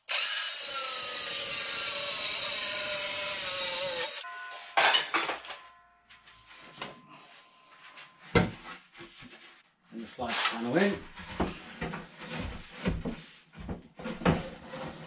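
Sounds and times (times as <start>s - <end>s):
circular saw cutting board: 0.0s - 4.3s.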